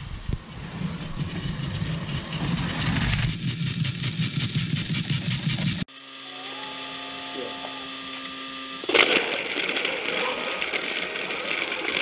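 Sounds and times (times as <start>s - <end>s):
wheels clattering on track: 0.0s - 5.9s, 8.9s - 12.0s
toy train motor whirring: 0.8s - 12.0s.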